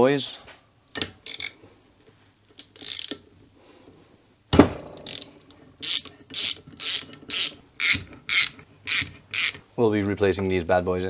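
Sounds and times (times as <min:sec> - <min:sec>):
socket ratchet clicking: 0:01.2 - 0:01.6, 0:02.5 - 0:03.2, 0:05.0 - 0:09.6.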